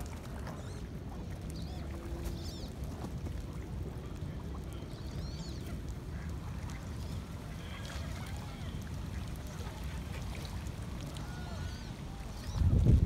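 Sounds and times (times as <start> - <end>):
wind rumble on microphone: 0.0 - 13.0
ducks and geese calling: 4.5 - 12.6.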